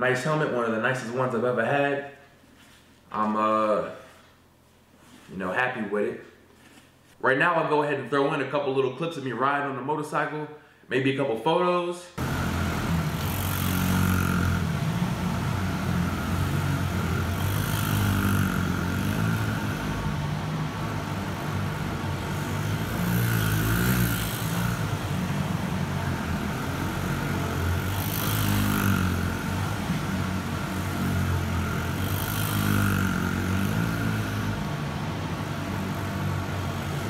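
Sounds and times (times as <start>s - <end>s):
mini motorcycle engine revving: 12.2s - 37.0s.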